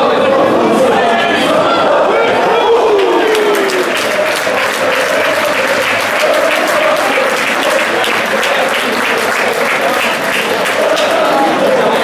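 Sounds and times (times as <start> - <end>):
crowd chanting: 0.0 - 12.0
crowd clapping in rhythm: 2.8 - 12.0.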